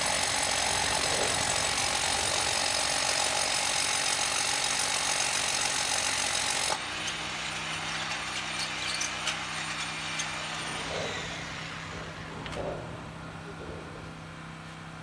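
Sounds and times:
hammer drill boring into concrete: 0.0s - 11.5s.

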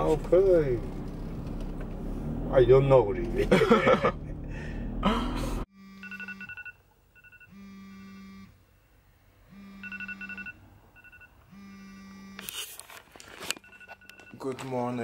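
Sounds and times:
smartphone alarm beeping: 5.8s - 8.5s, 9.5s - 12.4s, 13.6s - 14.5s.

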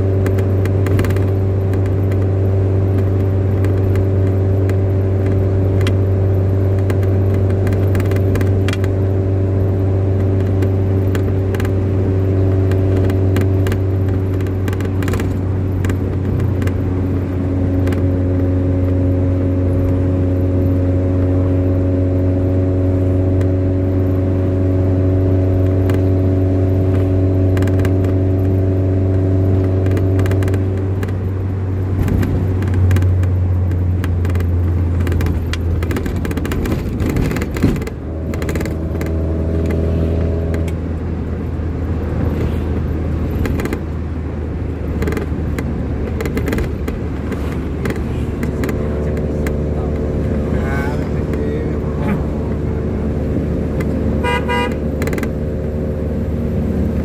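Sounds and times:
clicks and rattles: 31.9s - 39.8s, 43.3s - 43.9s, 44.8s - 50.1s
motor engine running: 46.1s - 57.0s.

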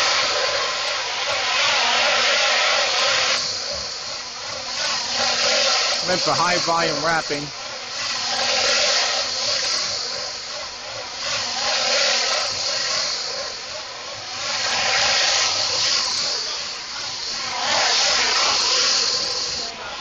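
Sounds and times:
conveyor machinery hissing rush: 0.0s - 20.0s.

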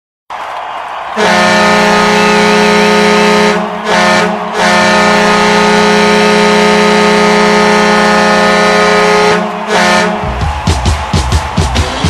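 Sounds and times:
goal horn blasting low tone: 1.2s - 10.3s.

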